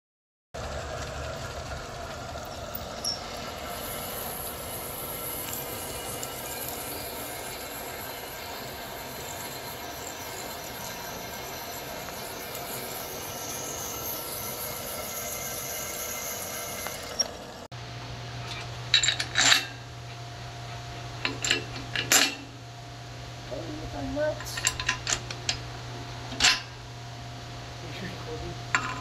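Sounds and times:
drill press motor running: 0.6s - 17.7s
drill bit squealing in steel: 2.5s - 17.5s.

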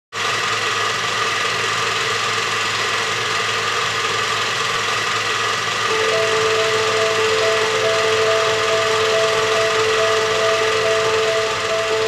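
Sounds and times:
machine-like hum: 5.8s - 12.0s
constant high tones: 5.9s - 12.0s.

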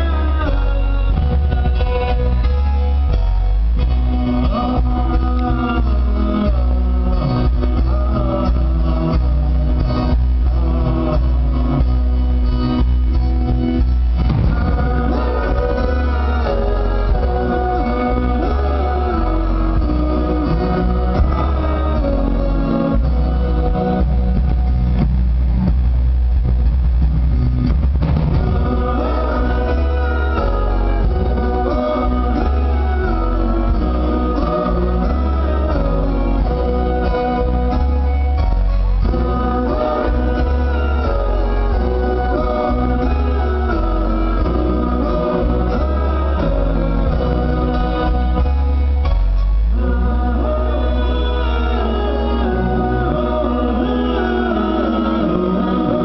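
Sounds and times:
live band with group singing: 0.0s - 56.0s.

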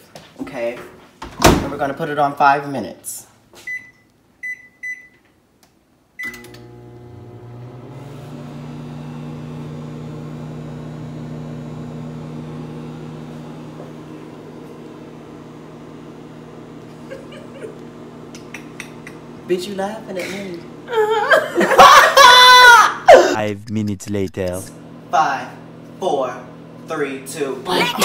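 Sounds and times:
microwave keypad beeps: 3.7s - 5.2s
microwave running hum: 6.2s - 23.3s, 24.4s - 28.0s.

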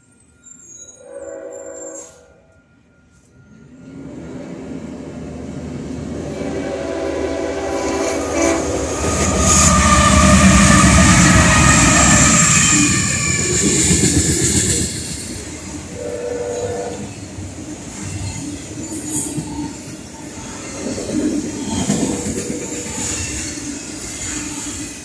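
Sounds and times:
train horn: 0.8s - 2.8s, 6.2s - 13.5s, 15.9s - 17.1s
diesel locomotive rumble: 4.5s - 17.6s.

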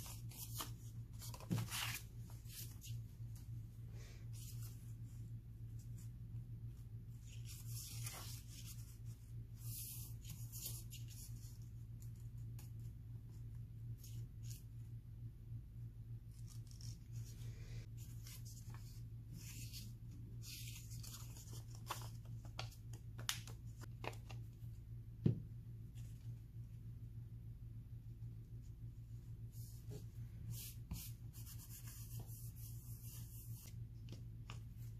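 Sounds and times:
paper rustling and rubbing: 7.1s - 11.6s, 16.3s - 24.2s.

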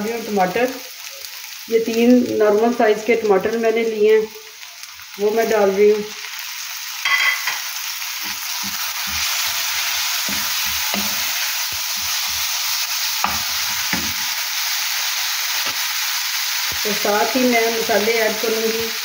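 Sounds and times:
vegetables sizzling in frying pan: 0.0s - 19.0s
wooden spoon scraping a pan: 8.2s - 14.3s.

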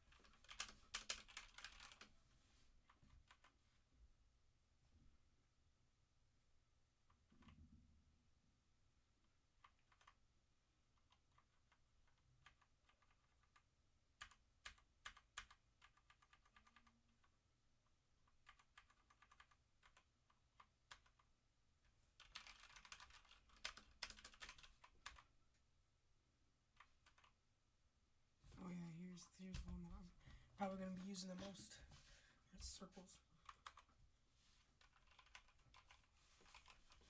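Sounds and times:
faint mechanical keyboard typing: 0.0s - 2.1s, 2.8s - 3.6s, 7.0s - 7.8s, 9.2s - 10.2s, 10.9s - 21.4s, 22.1s - 25.3s, 26.7s - 27.4s, 32.5s - 34.0s, 34.6s - 37.0s.

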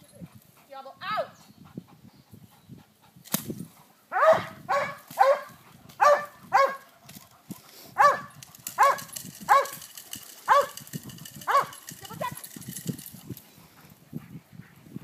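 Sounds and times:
dog barking sharply: 4.1s - 6.8s, 8.0s - 9.7s.

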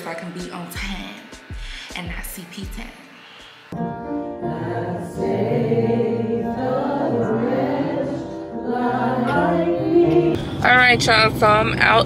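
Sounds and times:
choir singing gospel song: 3.8s - 11.4s.

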